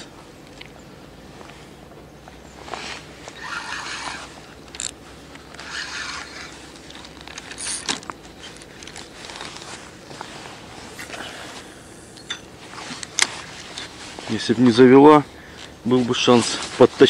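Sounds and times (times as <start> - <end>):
fishing line zipping off reel: 2.8 - 8.0
small reel clicks: 3.2 - 9.8.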